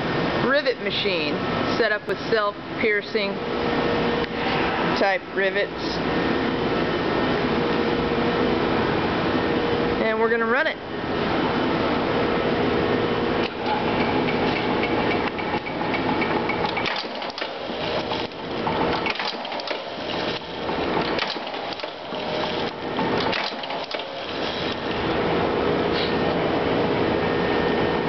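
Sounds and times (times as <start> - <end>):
rivet machine motor humming: 13.4 - 25.4.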